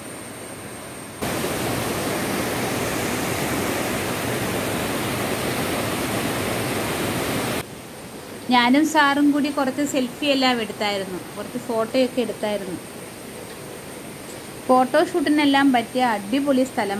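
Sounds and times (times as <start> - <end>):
water rushing down waterfall: 1.2 - 7.6.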